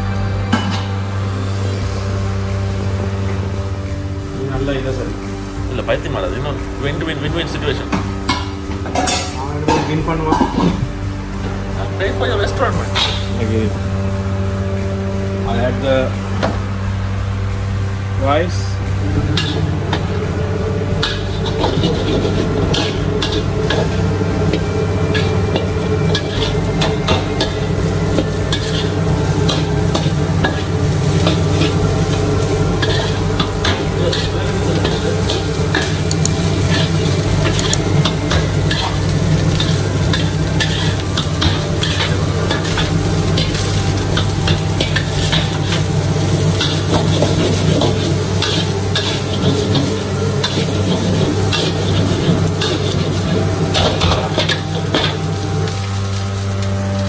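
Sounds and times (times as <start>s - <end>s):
rice sizzling: 0.0s - 57.0s
steady low hum: 0.0s - 57.0s
metal spatula scraping wok: 18.9s - 56.5s.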